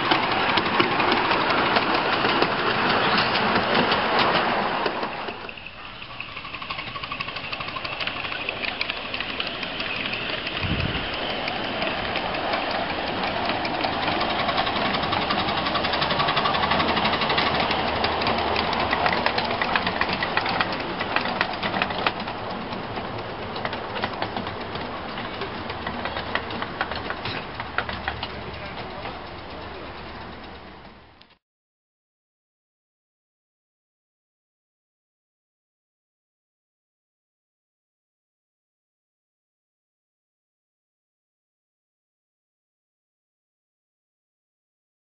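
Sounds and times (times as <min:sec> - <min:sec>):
small wheels clicking over rail joints: 0:00.0 - 0:31.4.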